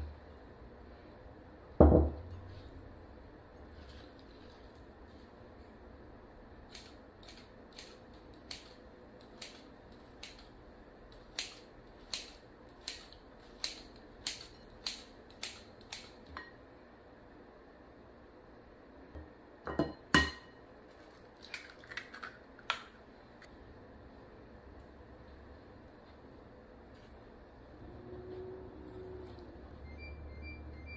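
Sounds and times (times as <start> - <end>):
scissors snipping noodles: 11.1 - 16.2.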